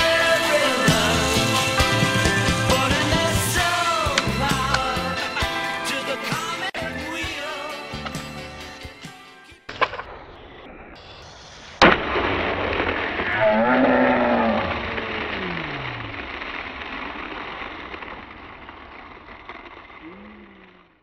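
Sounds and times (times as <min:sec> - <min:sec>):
loud crash: 0:09.7 - 0:20.5
wash of sound: 0:14.0 - 0:20.0.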